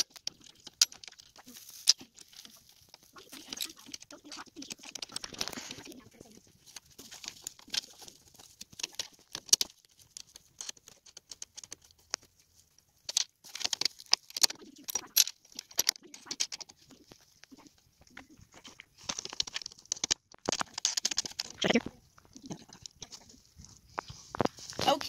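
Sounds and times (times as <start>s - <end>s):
metal hardware clicking and rattling: 13.1s - 17.2s.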